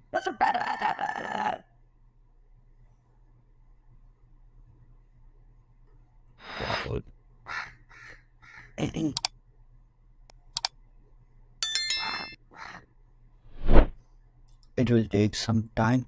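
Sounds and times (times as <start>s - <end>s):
bright chime: 11.6s - 12.4s.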